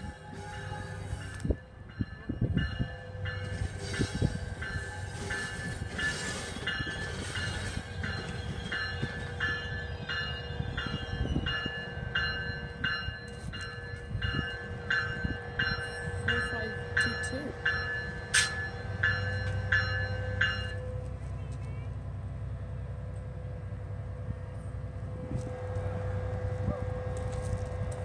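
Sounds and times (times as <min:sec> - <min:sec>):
train bell ringing: 0:00.0 - 0:22.0
train engine and wheels rumbling: 0:00.0 - 0:28.0.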